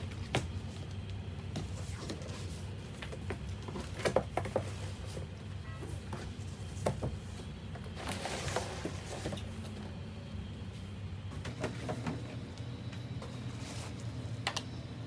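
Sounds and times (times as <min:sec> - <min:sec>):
steady low hum: 0:00.0 - 0:15.0
cardboard flaps scraping and rustling: 0:06.0 - 0:09.8.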